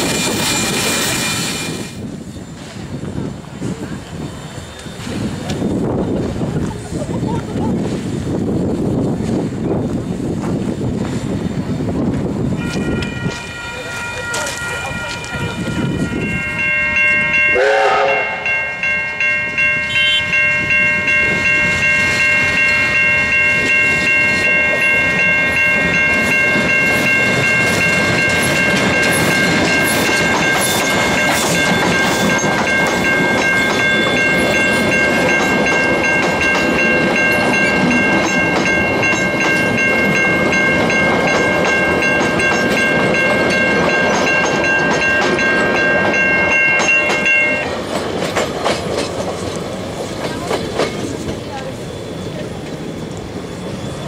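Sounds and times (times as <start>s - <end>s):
level-crossing alarm ringing: 12.6s - 47.8s
steam locomotive whistle: 17.4s - 18.8s, 19.8s - 20.4s.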